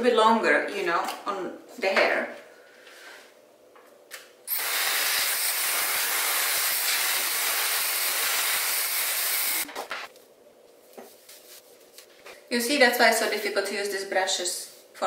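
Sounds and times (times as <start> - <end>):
hair dryer running: 4.5 - 9.7.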